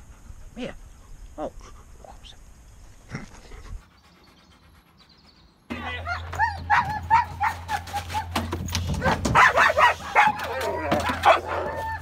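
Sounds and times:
dog barking: 0:06.0 - 0:08.4, 0:09.0 - 0:12.0
dog yipping and whining: 0:06.0 - 0:08.4, 0:09.0 - 0:12.0.

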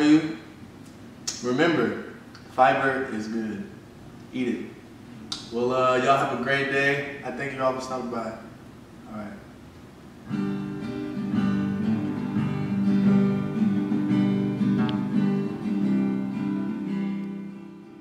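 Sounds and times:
acoustic guitar strumming: 0:10.0 - 0:18.0.

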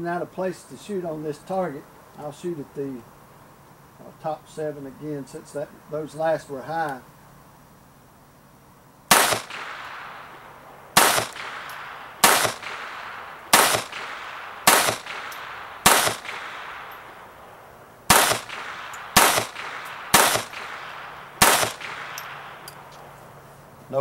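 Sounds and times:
pistol shots echoing: 0:09.1 - 0:23.2.

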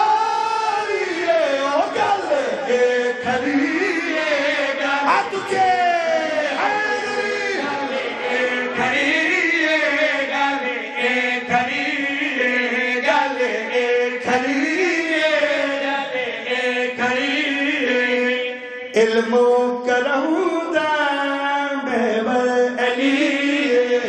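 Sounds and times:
men chanting together: 0:00.0 - 0:18.7.

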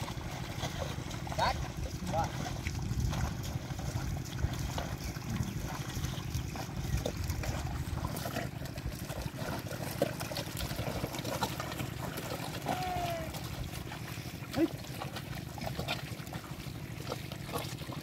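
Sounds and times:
steady low rumble: 0:00.0 - 0:09.4
hooves and plough splashing in mud: 0:00.0 - 0:18.0
water trickling and sloshing: 0:00.0 - 0:18.0.

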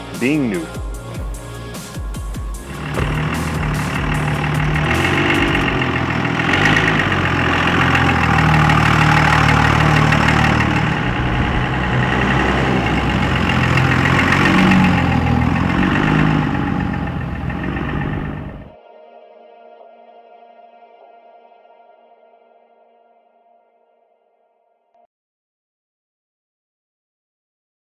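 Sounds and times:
diesel truck driving by: 0:02.6 - 0:18.8.

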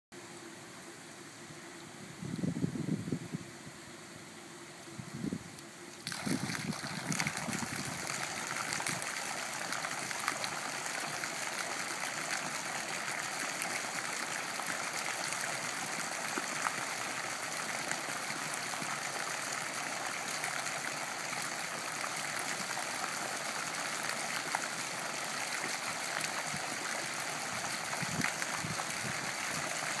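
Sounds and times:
fountain water splashing into pool: 0:06.0 - 0:30.0.

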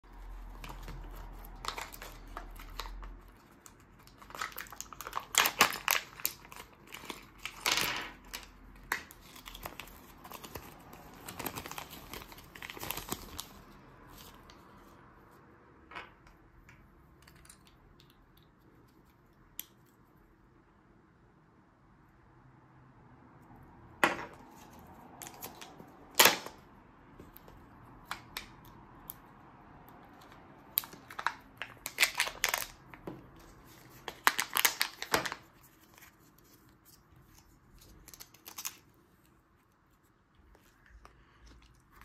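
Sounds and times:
paper crinkling and rustling: 0:00.0 - 0:15.0, 0:30.1 - 0:42.0.

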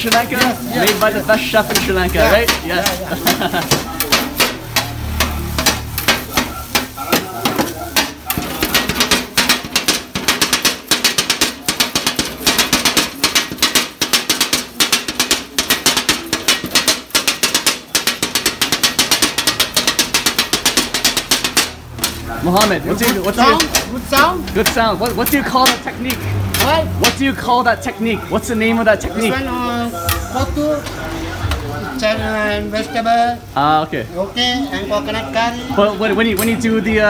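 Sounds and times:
steel blades clacking on griddle: 0:00.0 - 0:29.4.

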